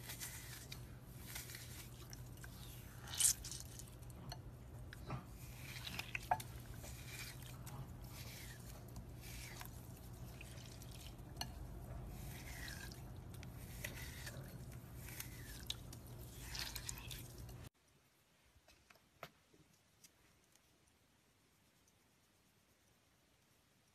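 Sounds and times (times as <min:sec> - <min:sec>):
floral foam crackling and squishing: 0:00.0 - 0:04.3, 0:05.0 - 0:11.4, 0:12.0 - 0:17.8.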